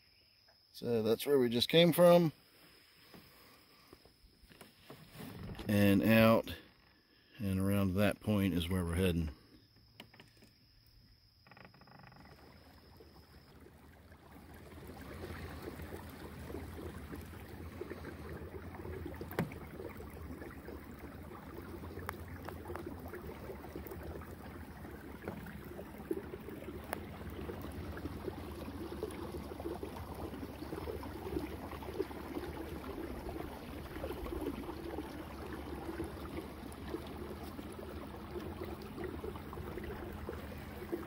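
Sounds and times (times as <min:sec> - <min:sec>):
water rushing along hull: 0:04.5 - 0:06.6, 0:11.4 - 0:41.0
boat motor running: 0:11.6 - 0:41.0.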